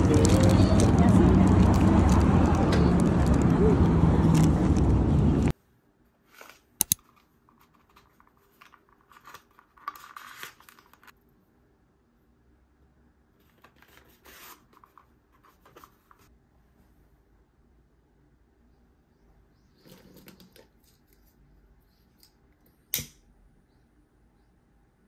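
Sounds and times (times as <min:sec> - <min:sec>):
loud busy background noise: 0:00.0 - 0:05.5
paper rustling and scratching: 0:06.2 - 0:11.2, 0:13.4 - 0:16.3.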